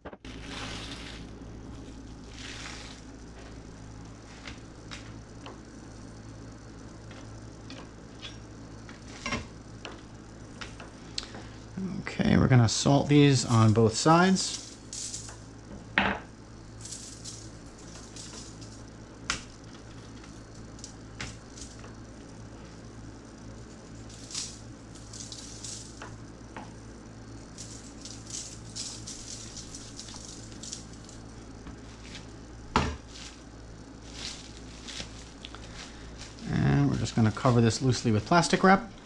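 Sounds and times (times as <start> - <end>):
steady low hum: 0.0 - 39.0
salt grains pattering: 0.3 - 5.3, 12.4 - 15.6, 16.7 - 38.8.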